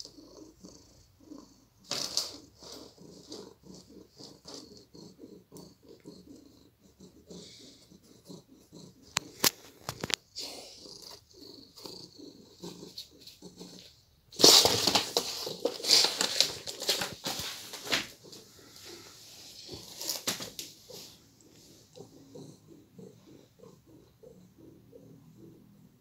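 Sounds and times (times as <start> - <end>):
cardboard box scraping on wooden floor: 14.4 - 18.2.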